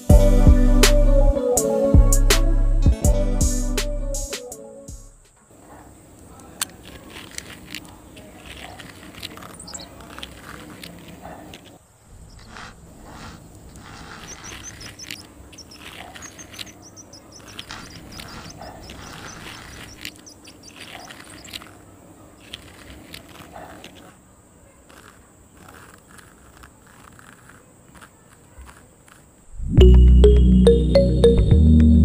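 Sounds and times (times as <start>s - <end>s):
small birds chirping: 5.4s - 29.5s
metal blade scraping through sand: 12.1s - 21.8s.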